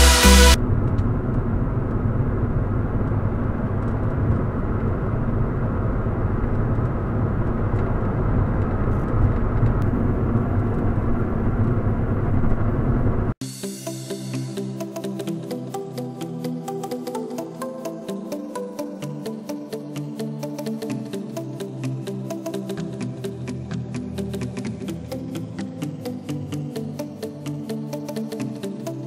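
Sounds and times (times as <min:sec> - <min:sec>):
tyre road and wind noise: 0:00.6 - 0:13.3.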